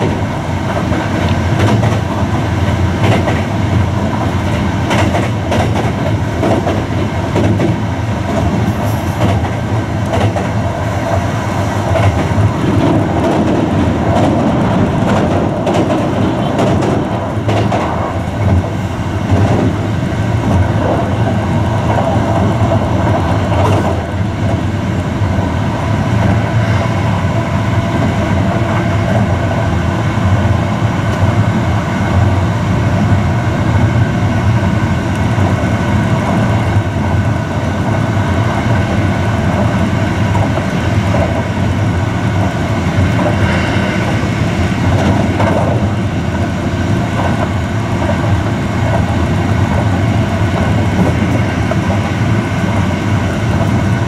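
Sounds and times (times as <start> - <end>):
train wheels rolling on rails: 0.0 - 54.0.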